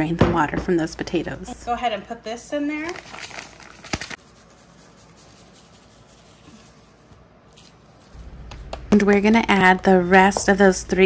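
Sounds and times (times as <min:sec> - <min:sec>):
seasoning powder sprinkling: 0:03.2 - 0:06.9.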